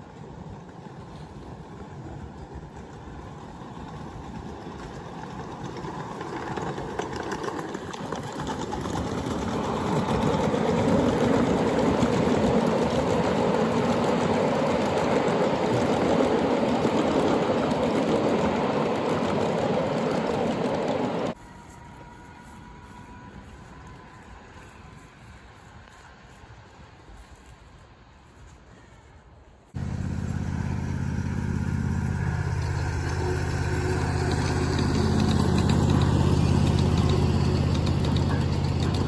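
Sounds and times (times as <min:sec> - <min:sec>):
miniature train wheels clattering: 0:00.6 - 0:21.4, 0:32.6 - 0:39.0.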